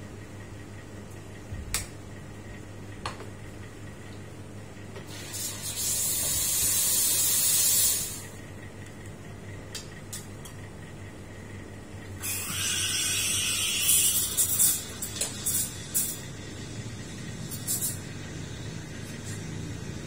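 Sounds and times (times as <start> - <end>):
steam wand hissing: 5.1 - 8.3, 12.2 - 20.0.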